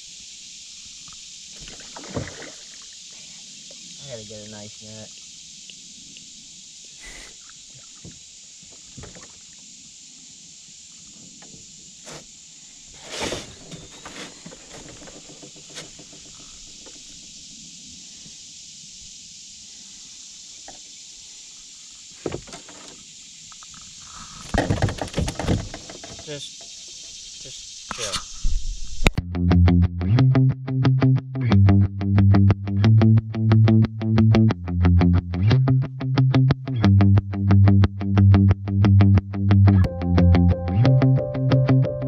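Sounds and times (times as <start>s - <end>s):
steady high hiss: 0.0s - 29.2s
knocks on canoe hull: 24.5s - 26.3s.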